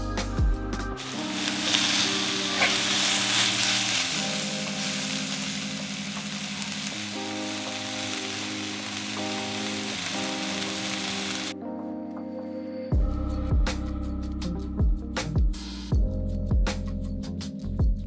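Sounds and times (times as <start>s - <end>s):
food sizzling in a wok: 1.0s - 11.6s
spatula stirring in wok: 1.4s - 5.3s.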